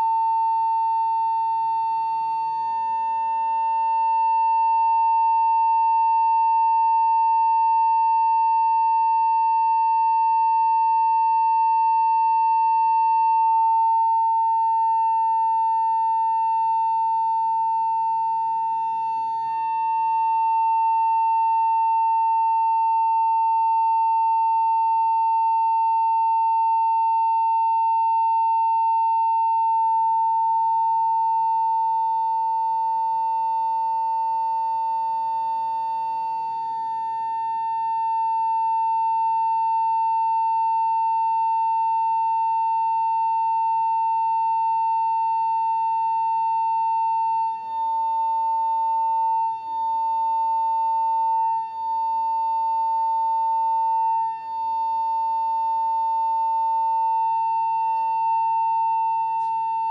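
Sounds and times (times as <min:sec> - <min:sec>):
steady pure tone: 0:00.0 - 0:23.3, 0:56.1 - 0:59.9.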